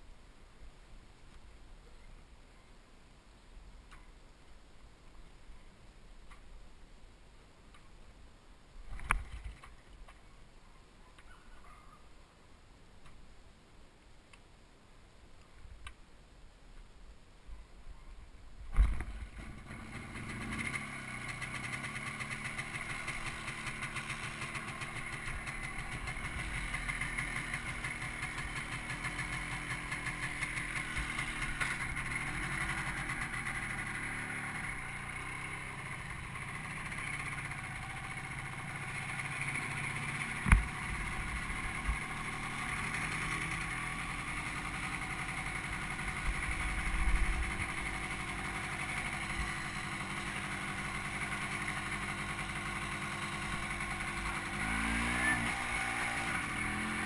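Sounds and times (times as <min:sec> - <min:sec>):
motorcycle engine running: 0:18.8 - 0:57.0.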